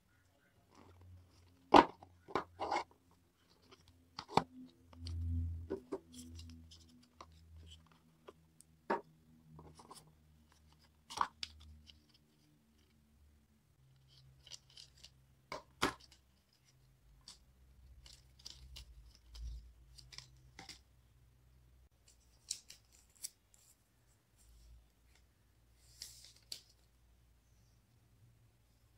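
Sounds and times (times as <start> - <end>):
handling packaging clicks and scrapes: 0.6 - 13.0, 13.8 - 20.9.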